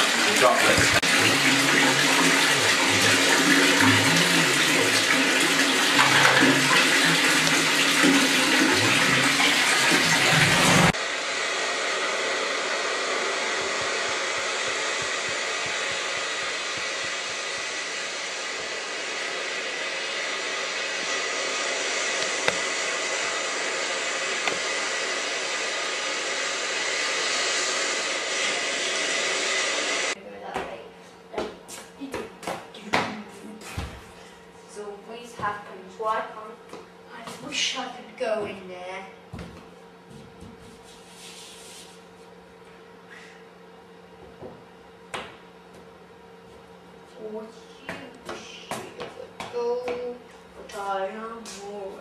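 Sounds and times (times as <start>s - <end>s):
water gushing into bathtub: 0.0s - 11.0s.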